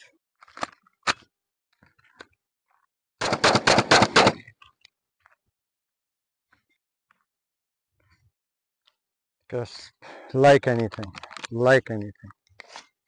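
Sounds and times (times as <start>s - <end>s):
rapid gunshots: 3.2s - 4.4s.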